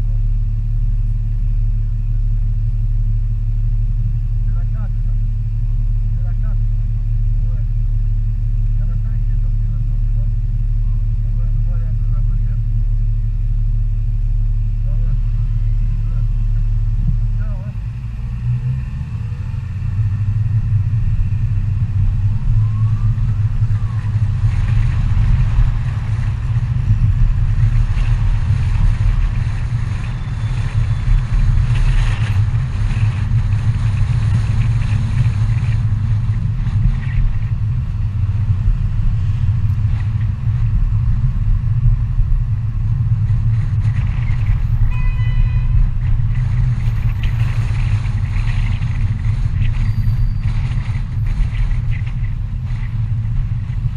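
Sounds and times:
car interior engine and road rumble: 0.0 - 53.9
brief pitched tone: 44.9 - 45.8.

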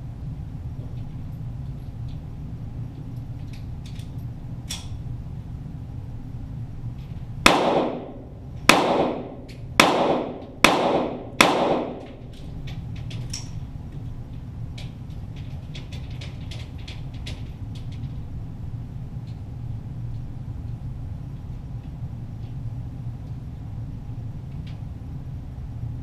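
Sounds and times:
pistol shots: 7.5 - 12.2.

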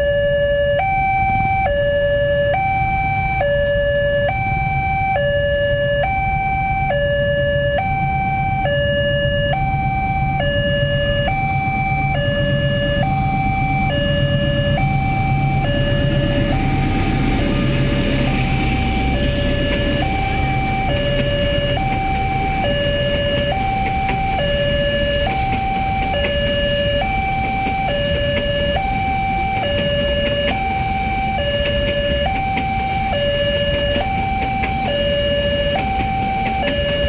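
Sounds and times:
diesel train rumble: 0.0 - 37.0
two-tone crossing alarm: 0.0 - 37.0
train wheels: 9.5 - 37.0.

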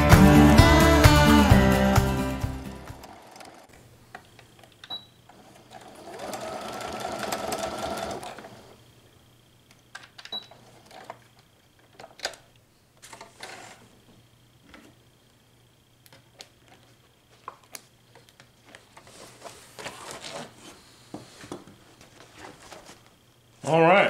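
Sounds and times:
sewing machine stitching: 3.0 - 3.7, 5.4 - 8.7.

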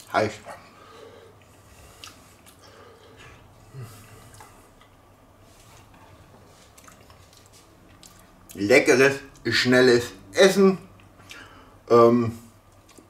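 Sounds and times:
faint chewing: 1.4 - 5.0, 5.6 - 8.6, 12.7 - 13.0.

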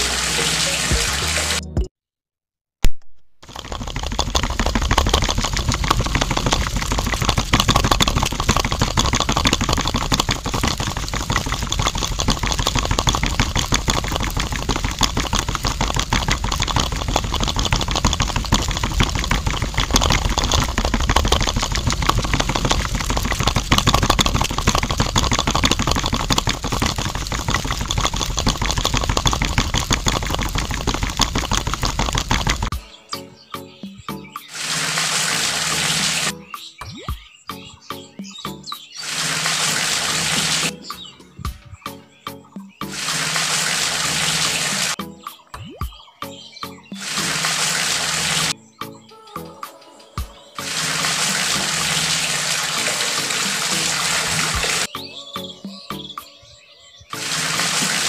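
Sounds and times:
water pouring into container: 0.0 - 1.7, 3.4 - 32.8, 34.5 - 36.4, 39.0 - 40.8, 42.8 - 45.0, 46.9 - 48.6, 50.6 - 54.9, 57.1 - 58.0
small motor rattling clatter: 3.4 - 32.7.

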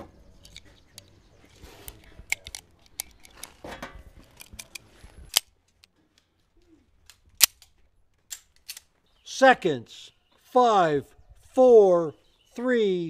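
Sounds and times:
cartridges clicking into magazine: 1.9 - 3.5, 7.1 - 8.9
pistol slide clacking: 7.1 - 8.9.

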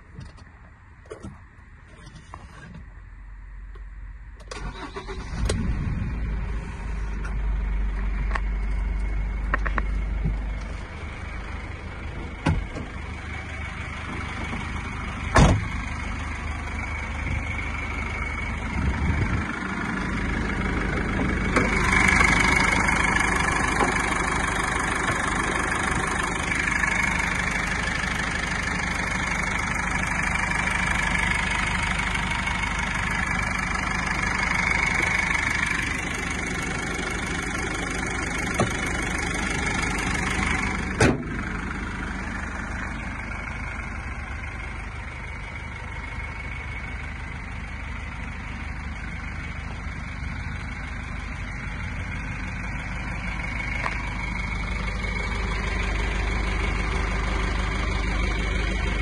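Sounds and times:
diesel engine idling: 0.0 - 59.0
loud thump: 15.3 - 15.7, 41.0 - 41.4.

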